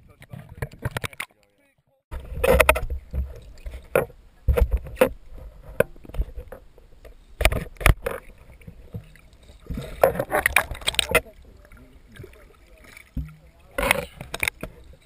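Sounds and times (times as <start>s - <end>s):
muffled underwater knocks: 2.1s - 11.3s, 12.1s - 14.9s
low rumble of water: 2.1s - 15.0s.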